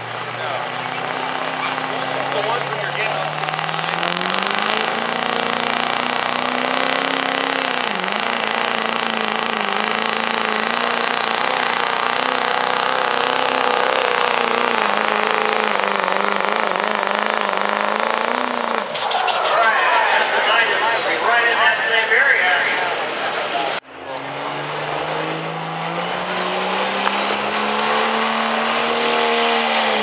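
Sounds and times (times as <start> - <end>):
diesel engine at full throttle: 0.0 - 30.0
high whistle: 18.9 - 21.1.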